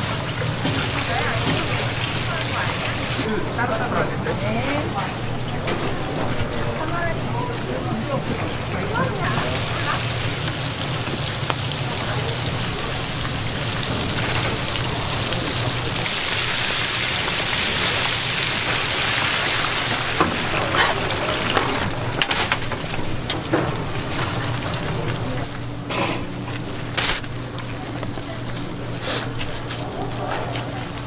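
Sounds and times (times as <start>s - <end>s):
shrimp deep-frying in oil: 0.0s - 3.6s, 4.2s - 31.0s.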